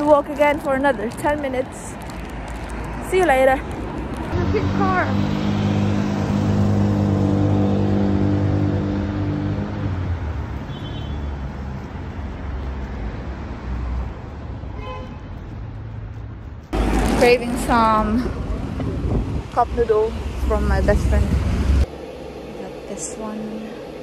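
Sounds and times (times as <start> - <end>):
rush of passing traffic: 0.0 - 24.0
vehicle engine steady note: 18.3 - 24.0.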